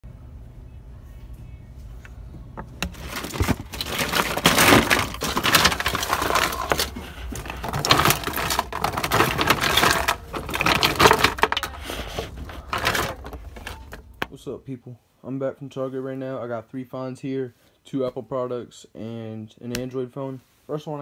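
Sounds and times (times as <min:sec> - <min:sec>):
plastic cartridges clattering: 0:02.8 - 0:14.4.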